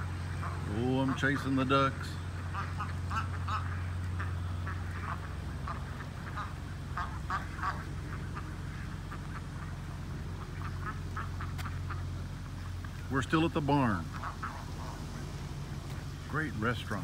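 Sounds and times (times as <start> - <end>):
ducks quacking: 0.0 - 17.0
low hum: 1.9 - 17.0.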